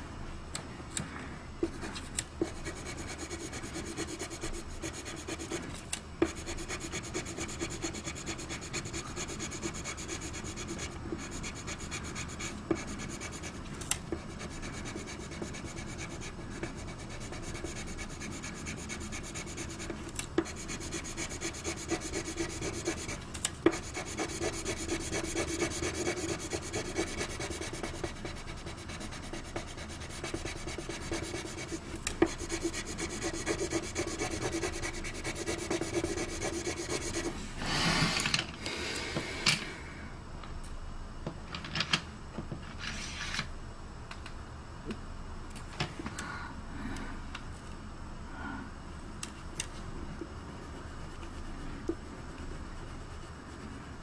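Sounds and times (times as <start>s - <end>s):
pencil scratching on paper: 1.6s - 5.6s, 6.2s - 13.6s, 14.2s - 37.4s.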